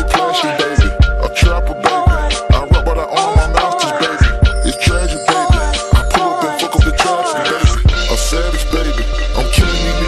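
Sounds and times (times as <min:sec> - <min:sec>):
hip hop music: 0:00.0 - 0:10.0
steady drum beat: 0:00.0 - 0:10.0.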